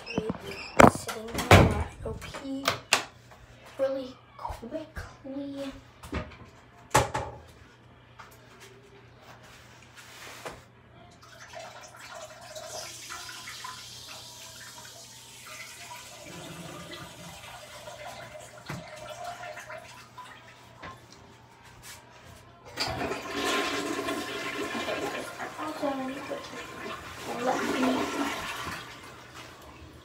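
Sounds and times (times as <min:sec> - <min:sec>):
person urinating into toilet: 0:11.2 - 0:20.8, 0:22.8 - 0:30.0
toilet flushing: 0:11.2 - 0:21.1, 0:22.7 - 0:30.0.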